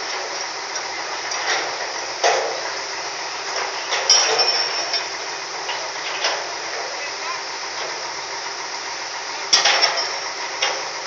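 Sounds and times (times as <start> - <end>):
steady machinery noise: 0.0 - 11.0
metal clanks and knocks: 1.3 - 2.7, 3.5 - 7.0, 9.5 - 10.9.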